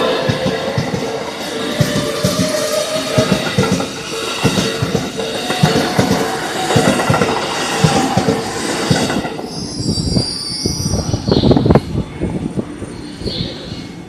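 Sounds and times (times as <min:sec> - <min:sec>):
train wheels clattering: 0:00.0 - 0:10.3
high wheel squeal: 0:00.0 - 0:11.5.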